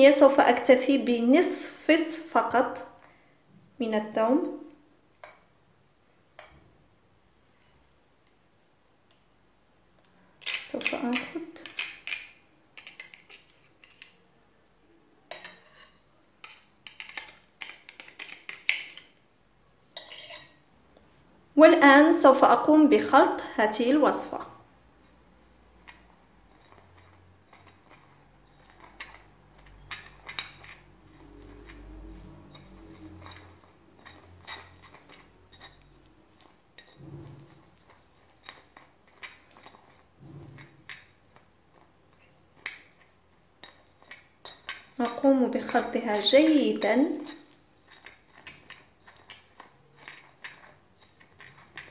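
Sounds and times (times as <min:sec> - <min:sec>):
knife scraping metal grater: 0:10.4 - 0:14.2, 0:15.4 - 0:19.0, 0:25.7 - 0:40.7, 0:47.2 - 0:51.9
spoon clinking against ceramic bowl: 0:20.0 - 0:20.6, 0:28.6 - 0:37.6, 0:43.6 - 0:46.3.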